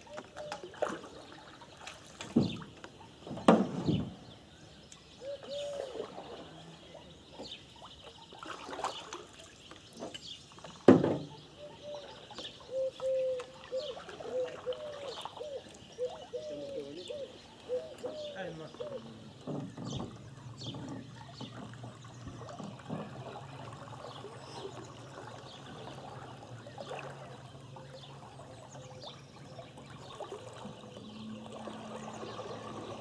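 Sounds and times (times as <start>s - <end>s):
birds calling: 0.0s - 33.0s
low coo-like notes: 12.7s - 33.0s.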